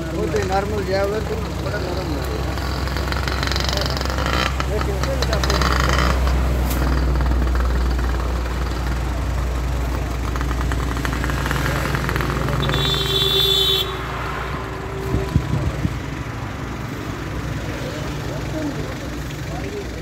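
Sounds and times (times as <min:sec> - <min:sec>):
road traffic rumble: 0:00.0 - 0:20.0
vehicle horn: 0:12.5 - 0:15.8.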